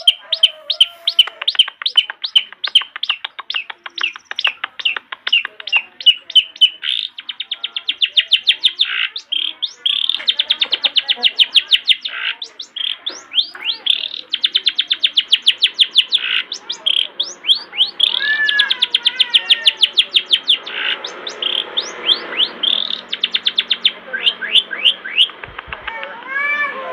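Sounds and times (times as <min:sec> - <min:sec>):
bird singing rattling high notes: 0:00.0 - 0:25.4
lower arched bird notes: 0:00.0 - 0:25.5.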